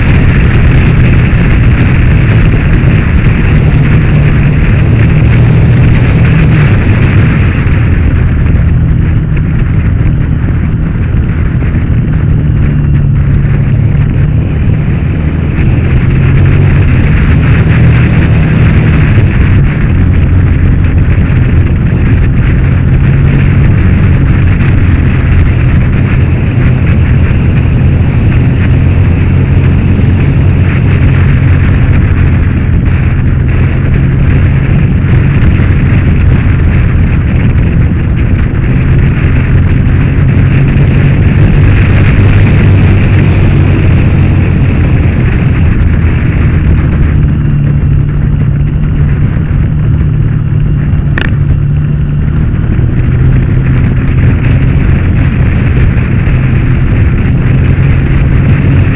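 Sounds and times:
motorcycle engine running hard: 0.0s - 58.9s
wind rush: 0.0s - 58.9s.

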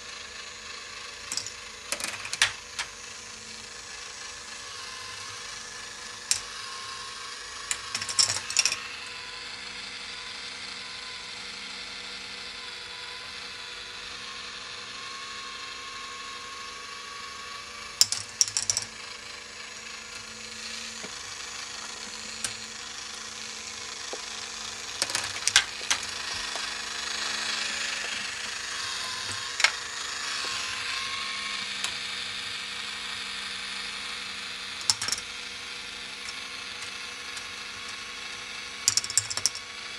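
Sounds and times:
motor and plastic gears whirring: 0.0s - 39.9s
ball clacking along plastic track: 1.2s - 3.0s, 7.6s - 8.8s, 18.0s - 19.0s, 20.8s - 30.8s, 34.8s - 35.4s, 36.2s - 39.8s.

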